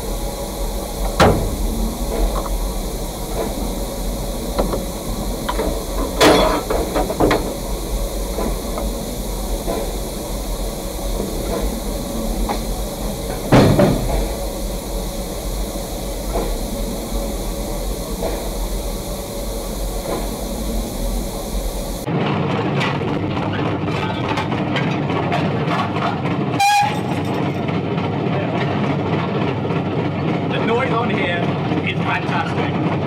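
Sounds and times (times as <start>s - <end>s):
steam locomotive hissing: 0.0s - 22.1s
metal knocks and clanks: 4.5s - 7.6s, 12.4s - 14.4s.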